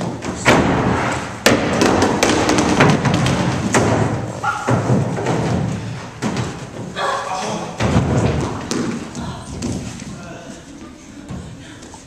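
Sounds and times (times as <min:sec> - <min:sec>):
thumps and knocks on wooden stage: 0:00.0 - 0:07.0, 0:07.8 - 0:10.1.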